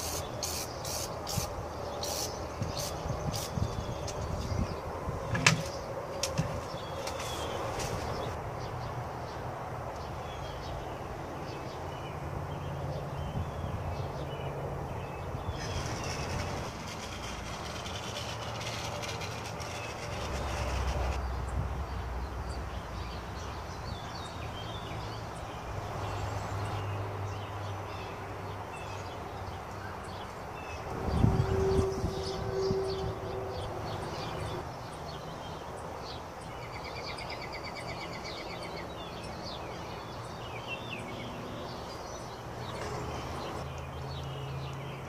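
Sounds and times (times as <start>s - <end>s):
birds chirping: 0.0s - 21.5s, 22.5s - 45.0s
low engine rumble: 15.3s - 21.3s.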